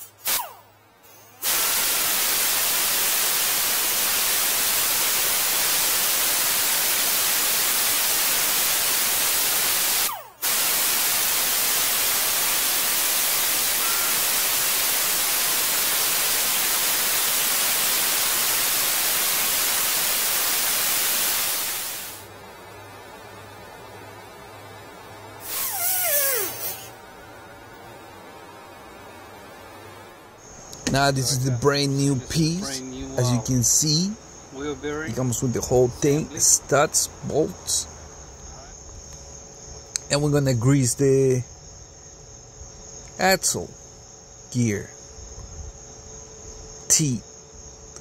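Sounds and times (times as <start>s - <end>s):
die grinder hissing against metal: 1.1s - 22.2s, 25.4s - 27.0s.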